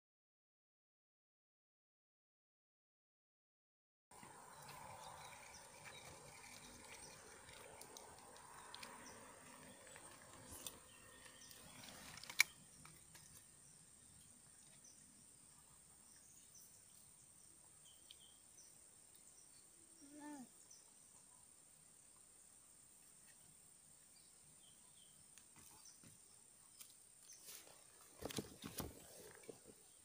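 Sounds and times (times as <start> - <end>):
insect trill: 4.2 - 15.3.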